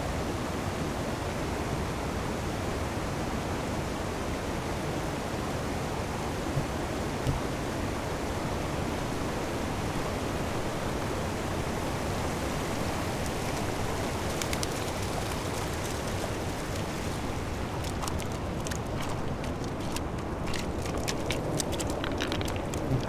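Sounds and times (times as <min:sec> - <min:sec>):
river water rushing: 0:04.6 - 0:23.0.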